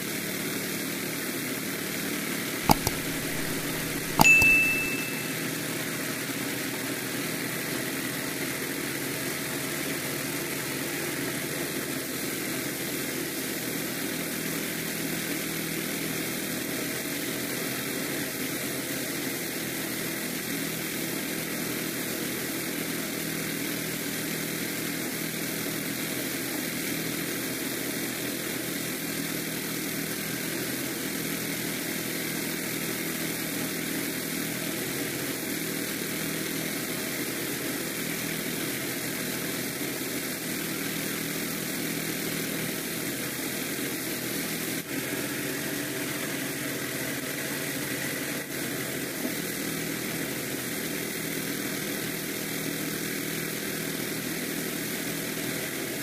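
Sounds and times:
small gasoline engine running: 0:06.8 - 0:56.0.

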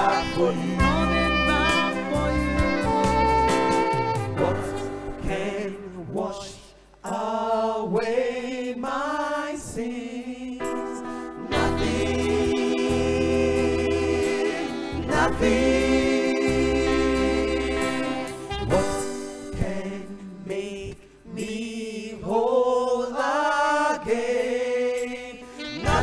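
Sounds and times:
gospel choir singing: 0:00.0 - 0:26.0
deep bass accompaniment: 0:00.8 - 0:04.8.

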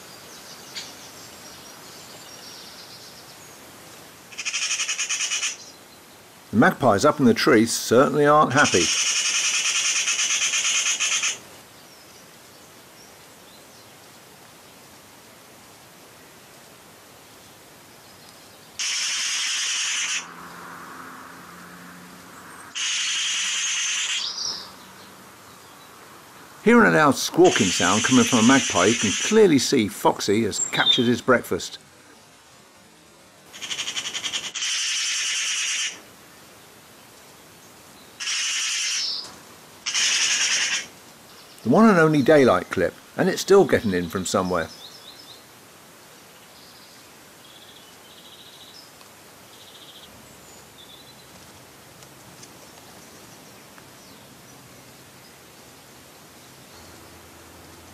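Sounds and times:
faint steady hiss: 0:00.0 - 0:57.9
magpie alarm chatter: 0:04.3 - 0:05.7, 0:08.5 - 0:11.4, 0:18.8 - 0:20.3, 0:22.7 - 0:24.7, 0:27.4 - 0:29.6, 0:33.5 - 0:36.0, 0:38.2 - 0:39.3, 0:39.9 - 0:40.9
faint bird chirps: 0:22.4 - 0:25.9.

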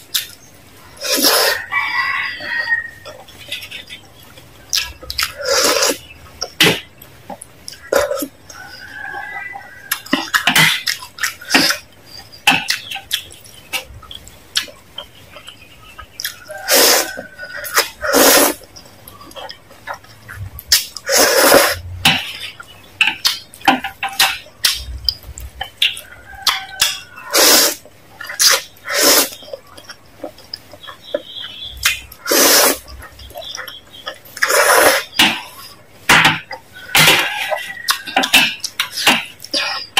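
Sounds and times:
noodle slurping: 0:01.0 - 0:01.6, 0:04.8 - 0:06.1, 0:16.2 - 0:18.7, 0:20.7 - 0:21.9, 0:27.2 - 0:29.5, 0:32.2 - 0:33.0, 0:34.4 - 0:35.8
wet chewing and smacking: 0:01.5 - 0:39.9.

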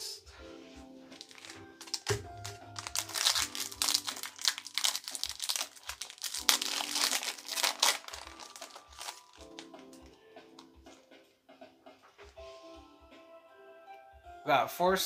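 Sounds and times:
soft background music: 0:00.0 - 0:15.0
foil wrapper crinkling and tearing: 0:01.2 - 0:10.1.

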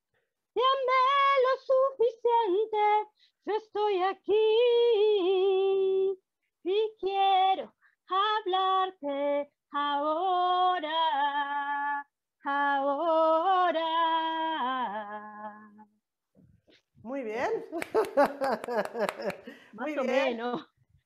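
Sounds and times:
woman singing unaccompanied: 0:00.6 - 0:15.8.

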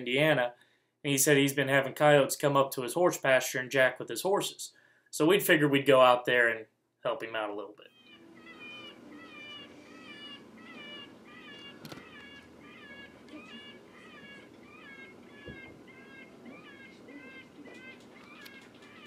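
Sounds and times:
electronic predator call wailing: 0:07.9 - 0:19.0.

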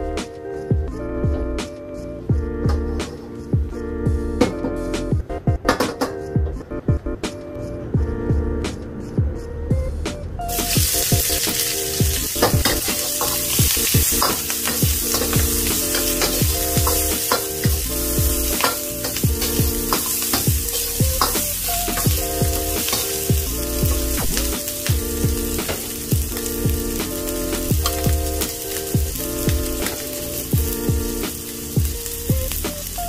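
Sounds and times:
onions sizzling in wok: 0:10.5 - 0:33.0.

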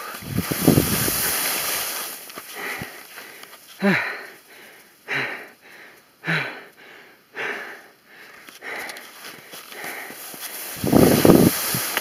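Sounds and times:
skis scraping across hard snow: 0:00.0 - 0:03.8, 0:09.0 - 0:12.0.

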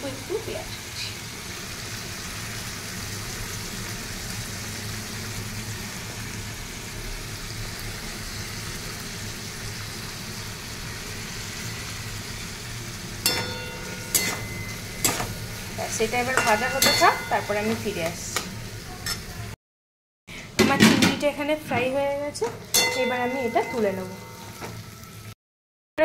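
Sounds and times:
food sizzling in a wok: 0:00.0 - 0:19.6, 0:21.2 - 0:25.4
metal spatula clanking on wok: 0:13.2 - 0:15.4, 0:16.2 - 0:17.9, 0:22.4 - 0:24.7.

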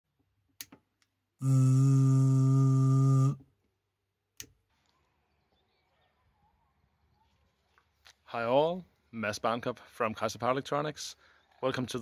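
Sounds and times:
loud buzzing tone: 0:01.4 - 0:03.4.

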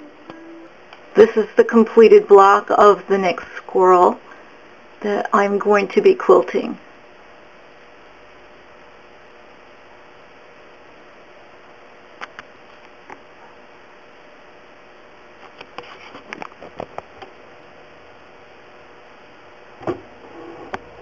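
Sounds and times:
room hiss: 0:00.0 - 0:21.0.

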